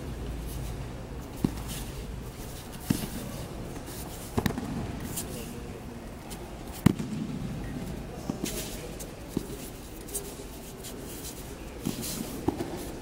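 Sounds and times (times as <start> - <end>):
murmur of voices: 0.0 - 13.0
body slapping onto mat: 4.3 - 4.9.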